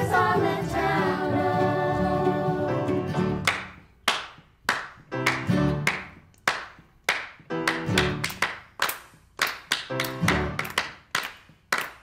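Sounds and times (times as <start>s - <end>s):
rhythmic claps in music: 3.1s - 12.0s.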